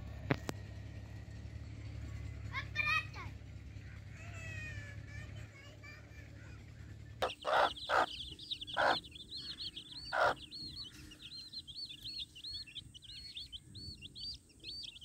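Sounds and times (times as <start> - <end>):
chicks peeping: 6.8 - 15.0.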